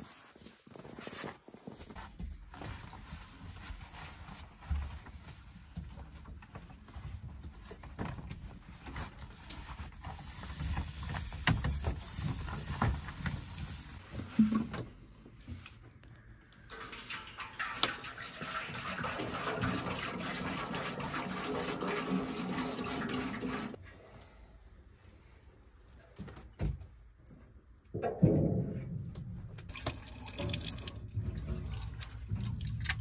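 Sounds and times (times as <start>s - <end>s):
water pouring into metal basin: 16.7s - 23.8s, 29.7s - 33.0s.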